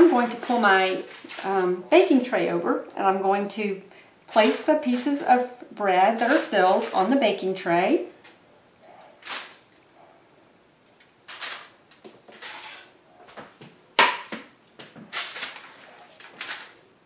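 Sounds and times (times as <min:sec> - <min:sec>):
aluminium foil crinkling: 0:00.0 - 0:02.4, 0:04.3 - 0:07.4, 0:08.0 - 0:09.8, 0:10.8 - 0:12.8, 0:15.1 - 0:16.9.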